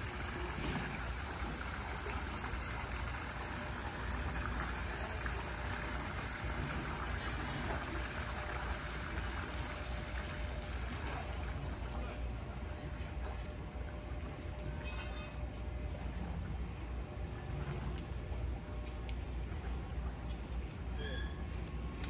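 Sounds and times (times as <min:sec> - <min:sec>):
water running into pool: 0:00.0 - 0:12.5.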